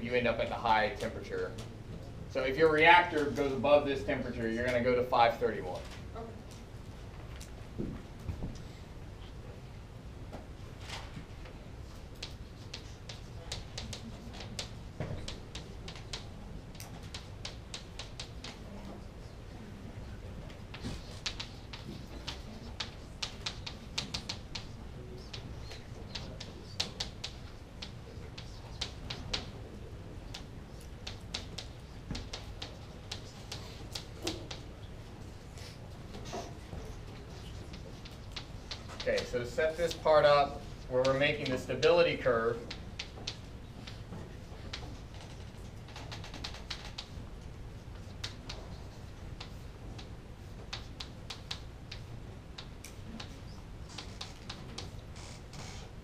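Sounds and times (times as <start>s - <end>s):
chalk tapping and scratching on board: 11.9s - 18.7s, 20.7s - 29.7s, 30.3s - 34.7s, 35.6s - 56.0s.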